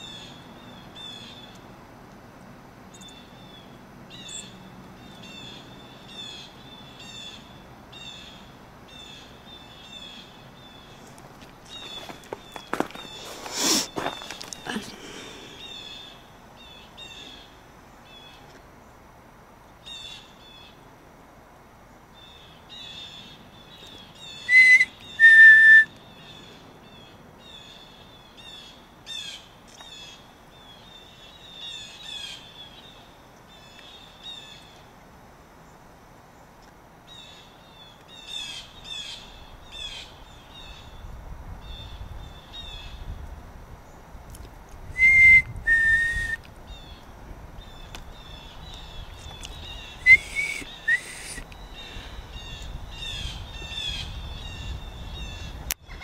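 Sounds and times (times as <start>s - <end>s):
small birds chirping: 2.9s - 19.1s, 21.8s - 35.0s, 35.6s - 56.0s
loud two-note whistles: 24.5s - 25.9s, 45.0s - 46.4s, 50.0s - 51.4s.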